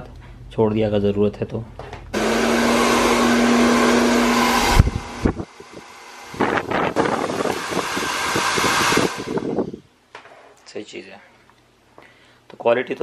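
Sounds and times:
hair dryer blowing: 0:02.2 - 0:09.8.

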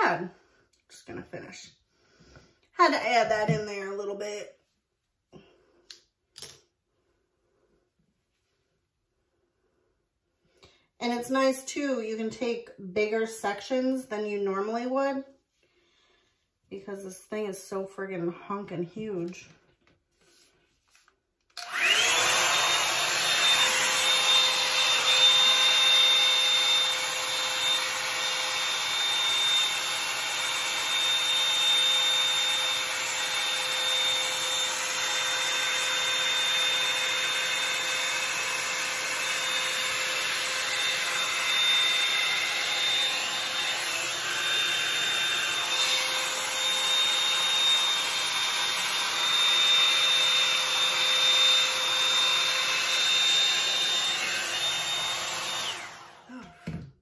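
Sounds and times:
hot-air brush fan whining: 0:21.6 - 0:56.9.

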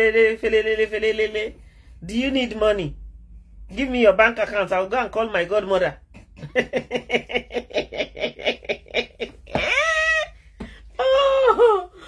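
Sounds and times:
woman laughing: 0:06.2 - 0:12.0.

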